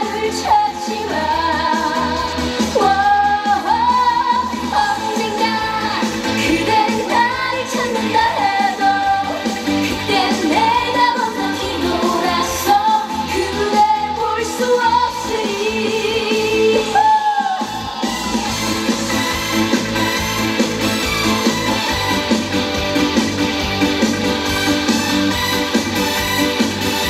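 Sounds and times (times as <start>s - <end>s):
woman singing pop song: 0.0s - 18.2s
backing track with bass: 0.0s - 27.0s.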